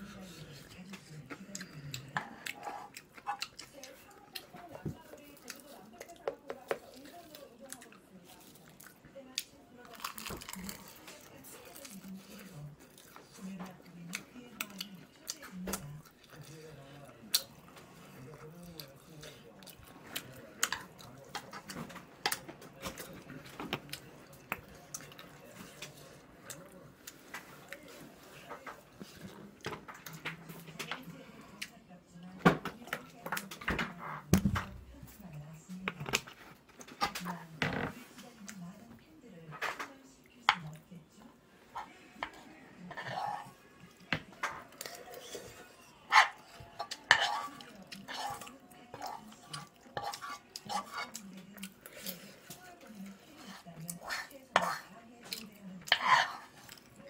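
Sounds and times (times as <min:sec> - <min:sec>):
wet chewing: 0:00.0 - 0:31.8, 0:42.2 - 0:57.0
metal spoon scraping frying pan: 0:42.9 - 0:43.6, 0:46.1 - 0:48.4, 0:49.9 - 0:51.1, 0:53.5 - 0:54.9, 0:55.9 - 0:56.6.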